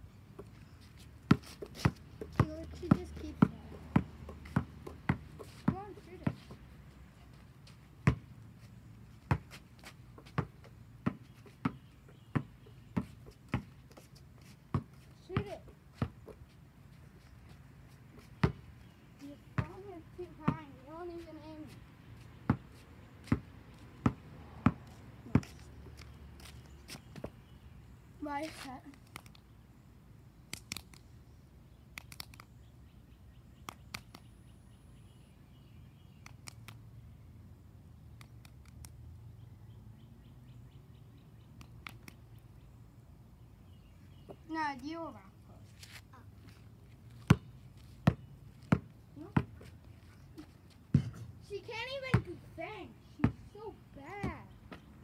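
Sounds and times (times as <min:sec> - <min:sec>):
basketball bouncing on asphalt: 0:00.3 - 0:06.7, 0:08.0 - 0:08.4, 0:09.1 - 0:16.5, 0:18.2 - 0:27.6, 0:47.2 - 0:49.8, 0:50.8 - 0:52.5, 0:53.2 - 0:55.0.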